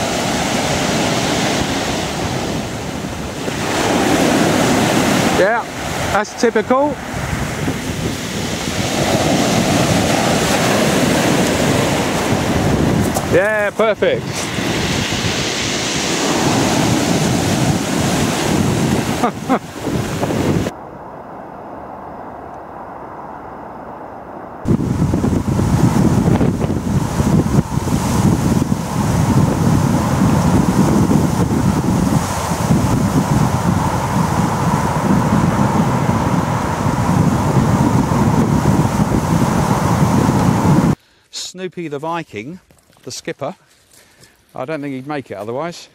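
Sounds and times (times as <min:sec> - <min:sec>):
surf breaking on pebbles: 0:00.0 - 0:20.7
wind buffeting microphone: 0:00.0 - 0:41.0
steady wind hiss: 0:00.0 - 0:45.9.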